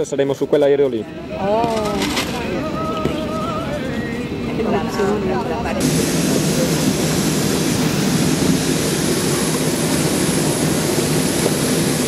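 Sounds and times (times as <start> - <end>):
high-pitched jet whine: 1.2 - 12.0
jet engine rushing noise: 5.7 - 12.0.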